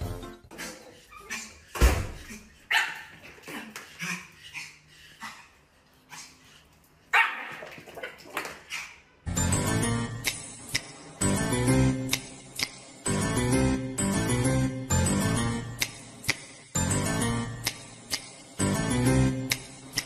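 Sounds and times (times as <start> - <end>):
small dog barking: 2.7 - 3.1, 7.1 - 7.7.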